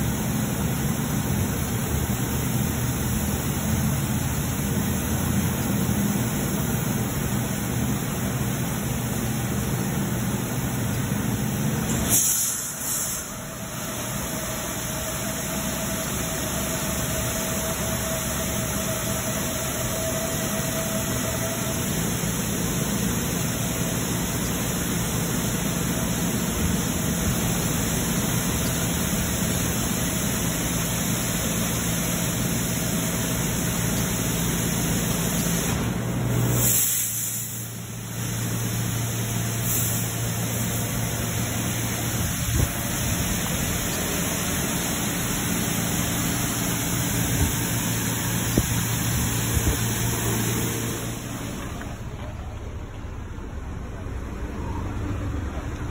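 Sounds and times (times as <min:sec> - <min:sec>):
car wash machine hum: 0:00.0 - 0:55.9.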